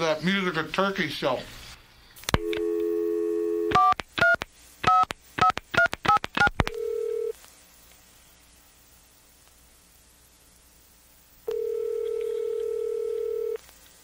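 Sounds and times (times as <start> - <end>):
dial tone: 2.4 - 3.8, 6.7 - 7.3, 11.5 - 13.6.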